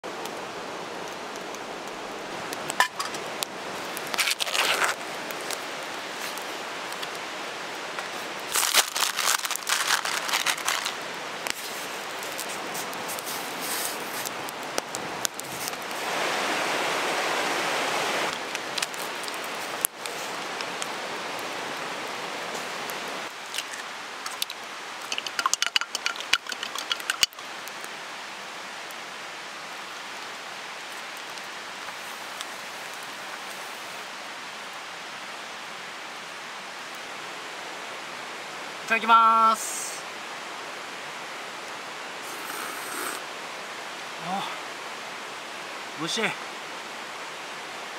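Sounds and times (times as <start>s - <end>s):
fire and boiling pot hissing: 0.0s - 47.9s
fire crackling: 0.0s - 47.9s
metal mess tin and utensils clinking: 23.6s - 27.4s.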